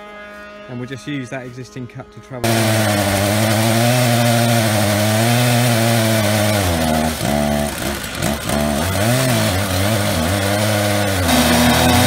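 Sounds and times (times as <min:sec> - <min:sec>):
chainsaw mill cutting log: 0:02.4 - 0:12.0.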